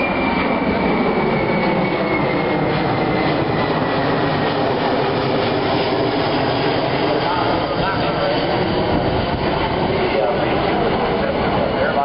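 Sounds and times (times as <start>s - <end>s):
aircraft engine drone: 0.0s - 12.0s.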